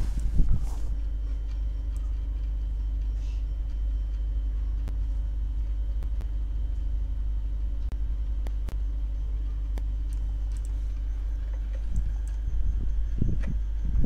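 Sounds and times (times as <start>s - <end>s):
faint hum: 0.0s - 14.0s
low background rumble: 0.0s - 14.0s
computer mouse clicks: 9.7s - 10.8s.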